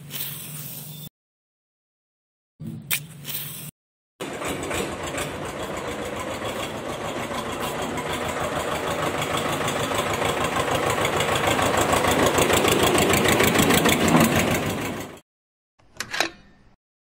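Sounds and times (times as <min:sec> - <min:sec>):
tractor engine knocking: 0:04.2 - 0:15.2.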